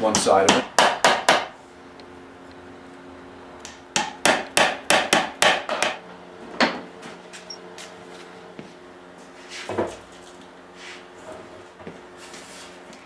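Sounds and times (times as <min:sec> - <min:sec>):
hammer tapping wooden dowels: 0:00.0 - 0:01.6, 0:03.6 - 0:06.0.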